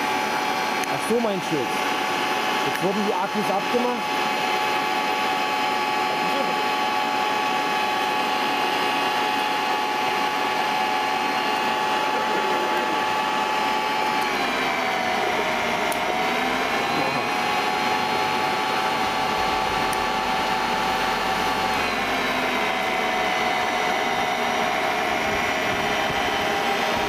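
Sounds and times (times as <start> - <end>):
electric motor whining: 0.0 - 27.0.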